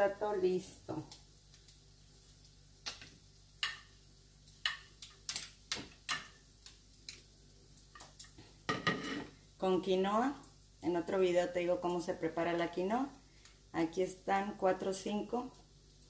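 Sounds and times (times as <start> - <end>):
plates clicking and tapping: 4.6 - 6.4.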